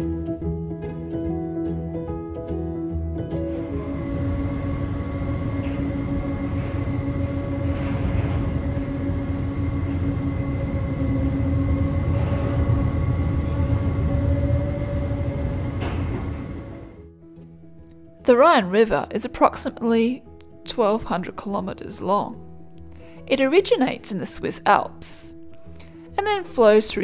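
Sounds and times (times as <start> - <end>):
machinery hum: 3.4 - 17.1.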